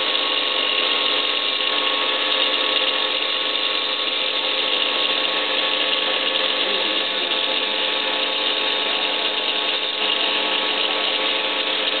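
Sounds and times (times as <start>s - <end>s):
tile saw motor whining: 0.0s - 12.0s.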